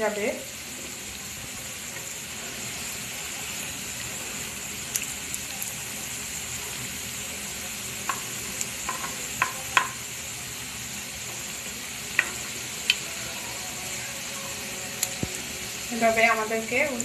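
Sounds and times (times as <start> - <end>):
donuts sizzling in oil: 0.0 - 17.0
spatula tapping: 8.0 - 10.0, 12.2 - 13.0.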